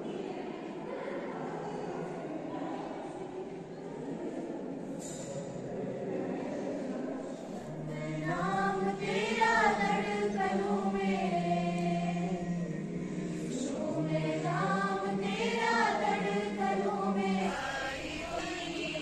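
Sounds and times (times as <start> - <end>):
group of students singing: 7.5 - 19.0.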